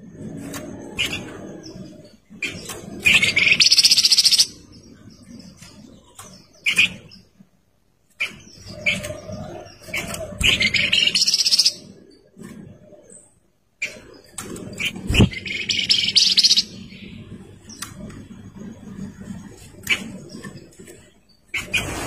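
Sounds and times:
songbird trilling song: 1.0 - 7.3, 8.1 - 12.2, 13.2 - 18.1.

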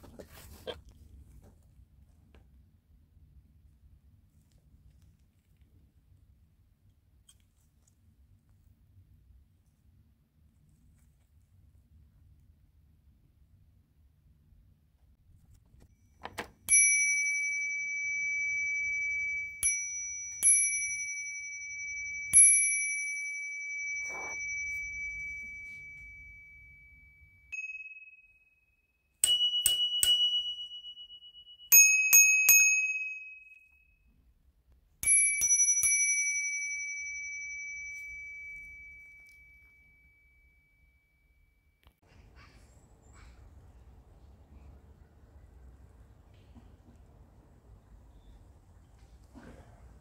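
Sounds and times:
brass bicycle bell ringing: 16.4 - 34.0, 35.0 - 41.7.

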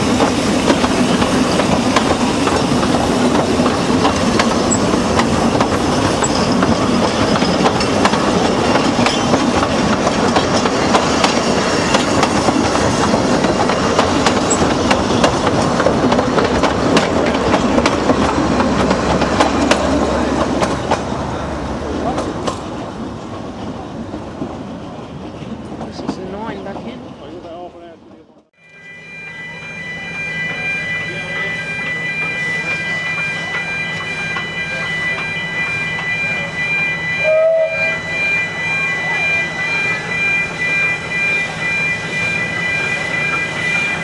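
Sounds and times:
train wheels clattering over rail joints: 0.0 - 21.3.

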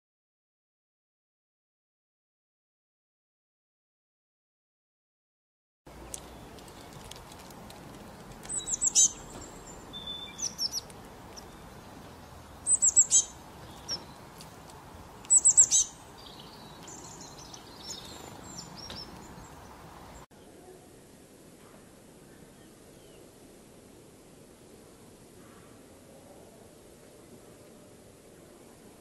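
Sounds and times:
songbirds calling high notes: 8.0 - 21.0
soft bird chirps and twitters: 8.0 - 21.1.

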